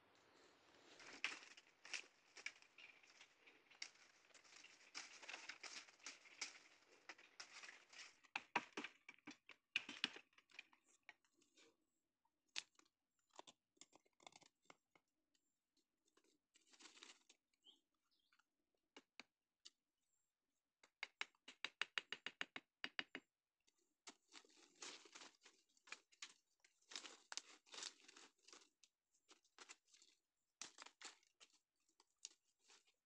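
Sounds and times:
sticks and dry leaves rustling: 0.7s - 8.6s, 24.4s - 28.7s
footsteps crunching dry leaves: 0.9s - 7.9s.

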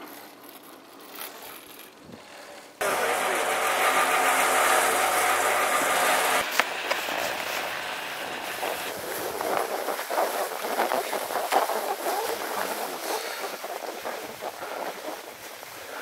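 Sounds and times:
mechanical hum: 0.0s - 12.7s
footsteps crunching on snow: 6.4s - 16.0s
wind on microphone: 6.7s - 16.0s.

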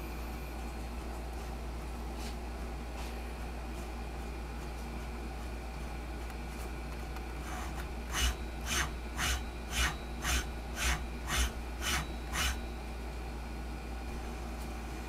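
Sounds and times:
servo motor whirring strokes: 7.4s - 12.6s.

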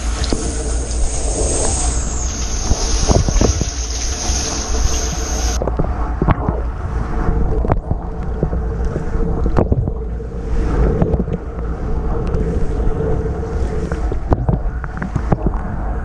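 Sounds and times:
water spraying: 0.0s - 5.6s.

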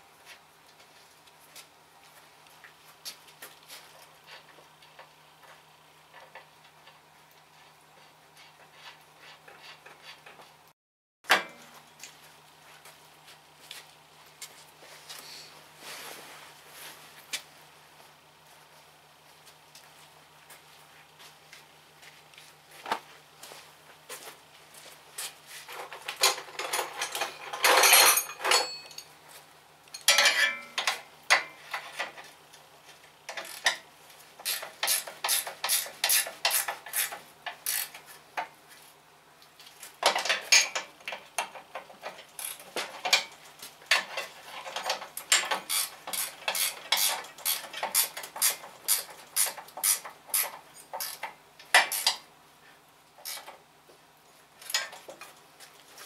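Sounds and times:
hand tools clinking on metal: 25.8s - 29.2s, 29.9s - 32.2s, 40.0s - 52.2s.

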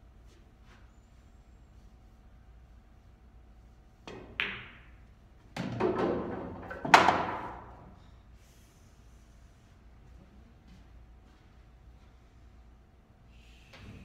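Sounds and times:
cue tip tapping ball: 4.1s - 5.0s.

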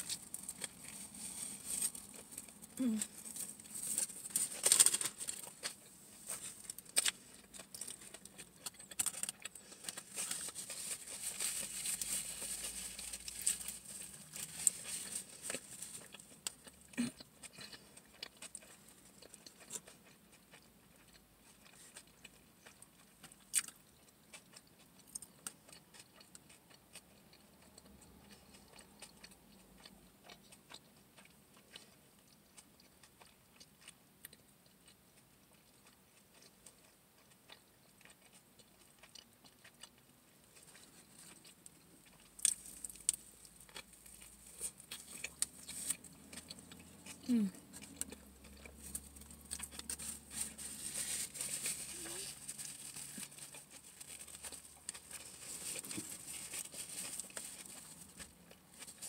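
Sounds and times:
person chewing: 0.0s - 59.0s
paper wrapper rustling: 3.3s - 5.7s, 9.0s - 16.1s, 49.6s - 58.2s.

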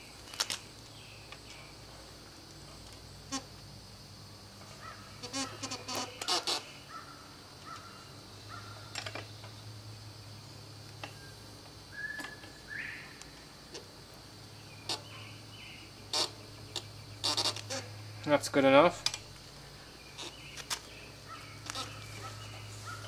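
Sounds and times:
bird calls: 4.6s - 9.7s, 11.0s - 13.5s, 14.5s - 18.3s, 19.2s - 23.0s.

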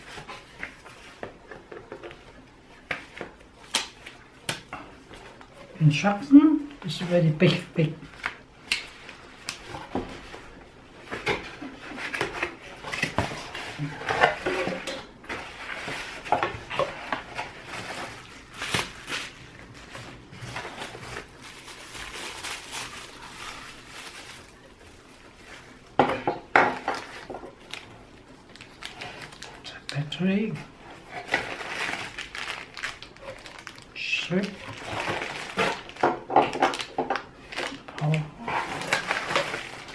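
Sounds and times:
packaging rustling and crinkling: 0.0s - 39.9s.

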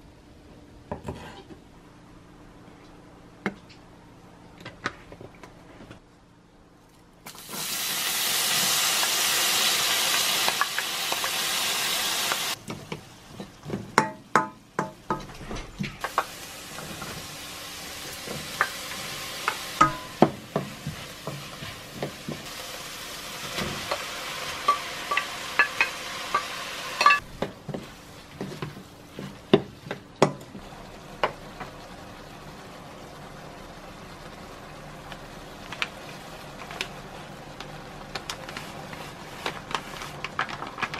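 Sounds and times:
onion sizzling in hot oil: 7.3s - 12.7s, 16.0s - 39.4s.

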